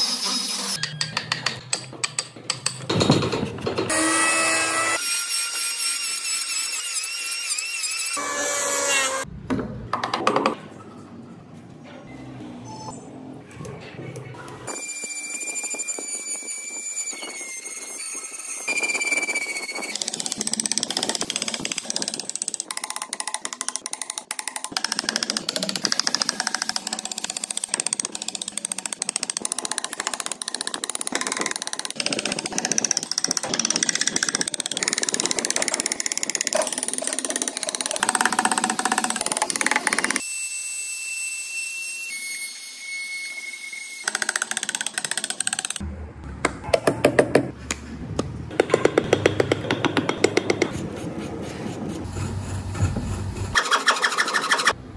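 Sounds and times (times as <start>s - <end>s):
rotary tool whining: 14.7s - 40.3s
hand gouge scraping wood: 49.0s - 54.7s.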